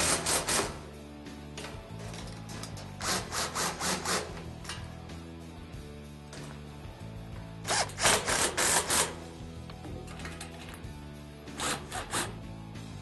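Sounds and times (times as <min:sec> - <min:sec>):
background music: 0:00.0 - 0:13.0
cordless drill bursts: 0:07.7 - 0:09.2.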